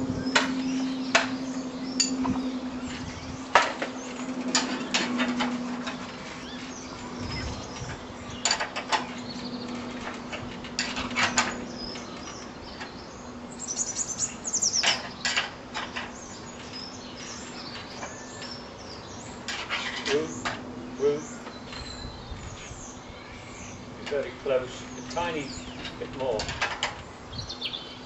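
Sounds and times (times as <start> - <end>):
steady low hum: 0.0 - 19.5.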